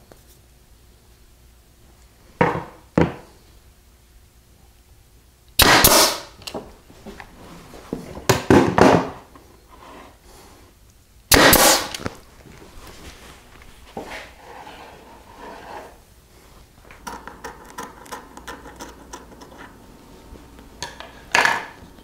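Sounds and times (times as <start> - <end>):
pneumatic nailer shot: 5.6 - 6.4, 11.3 - 12.1
wooden strips clattering on workbench: 20.8 - 21.8.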